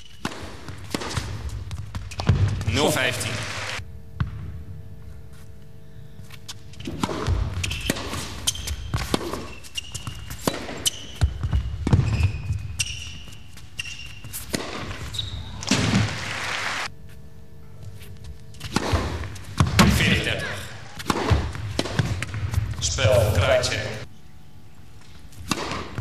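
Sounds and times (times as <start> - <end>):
racket striking ball: 0.0 - 2.8, 6.8 - 13.0, 14.4 - 16.2, 18.6 - 23.7, 25.4 - 26.0
tennis ball bouncing: 0.0 - 2.8, 6.8 - 16.1, 18.6 - 20.2, 20.9 - 23.7, 25.4 - 26.0
shoes squeaking on court: 0.0 - 3.1, 5.0 - 16.0, 17.0 - 24.1.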